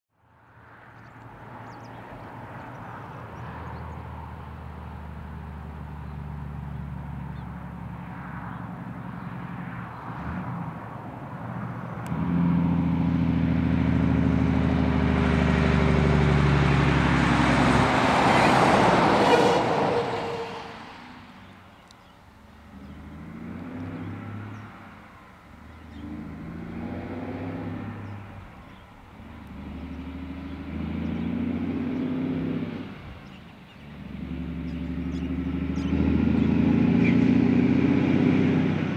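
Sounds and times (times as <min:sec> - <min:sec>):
truck passing at road speed: 0:00.2 - 0:38.9
truck engine surging: 0:12.0 - 0:21.4, 0:22.5 - 0:38.9.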